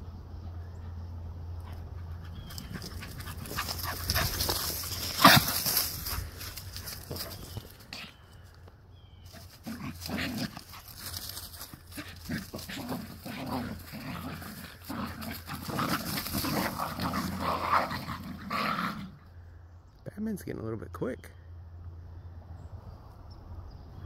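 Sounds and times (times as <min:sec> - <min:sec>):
dogs growling and yapping: 0:01.6 - 0:08.2, 0:09.2 - 0:19.4.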